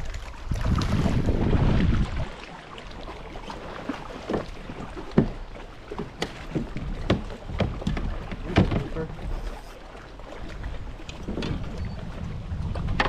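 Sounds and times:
water slapping and splashing: 0.0s - 13.0s.

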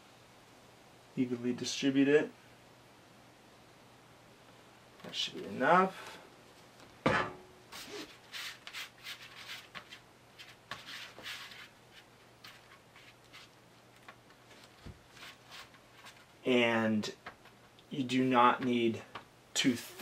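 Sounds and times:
glue rubbing and scraping: 7.7s - 13.6s, 14.6s - 16.3s.

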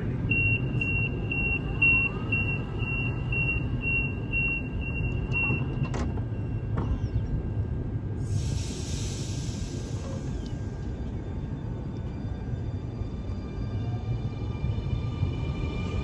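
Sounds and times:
train door warning beeps: 0.2s - 7.0s.

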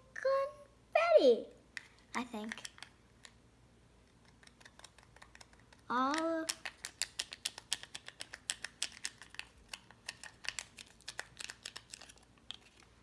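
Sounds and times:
foil sachet crinkling: 6.6s - 12.9s.

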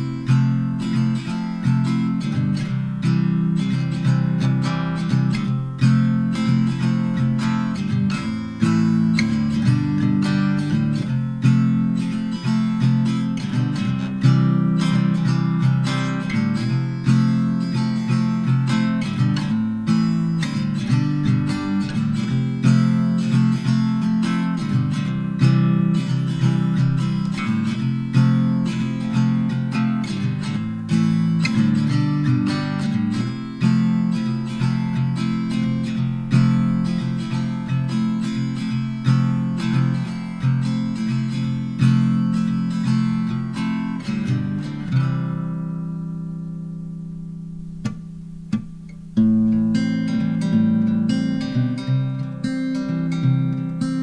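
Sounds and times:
acoustic guitar strummed: 0.0s - 54.0s.

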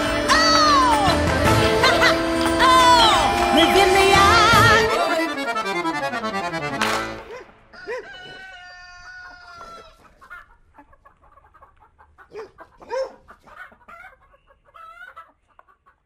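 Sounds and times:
chickens clucking: 7.0s - 16.0s
rooster crowing: 7.7s - 10.1s.

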